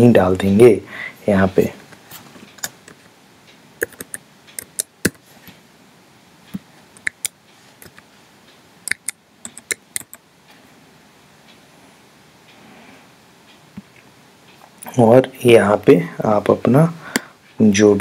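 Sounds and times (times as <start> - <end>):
keyboard typing clicks: 3.8 - 5.2, 8.9 - 10.2.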